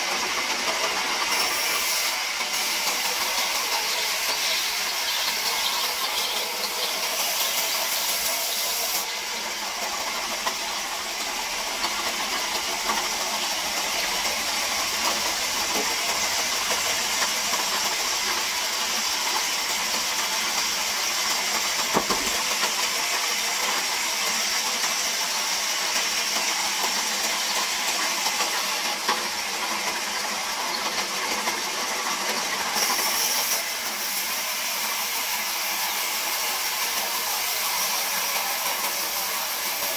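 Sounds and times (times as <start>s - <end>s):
band saw cutting wood: 0.0s - 24.0s, 32.6s - 39.9s.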